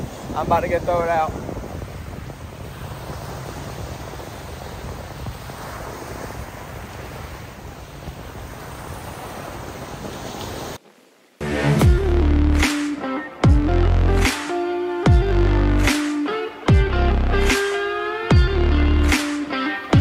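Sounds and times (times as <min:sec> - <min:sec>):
wind rumbling on microphone: 0:00.0 - 0:10.8
small waves breaking on a beach: 0:00.0 - 0:11.4.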